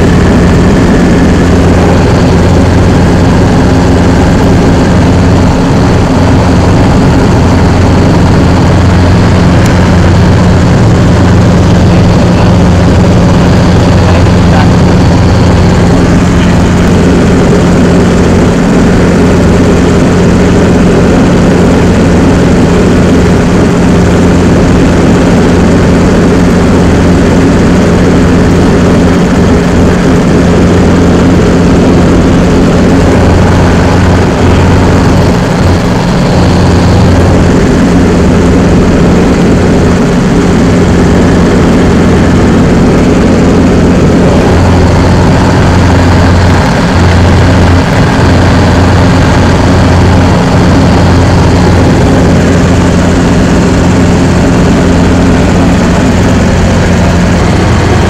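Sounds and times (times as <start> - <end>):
helicopter engine and rotor drone: 0.0 - 58.0.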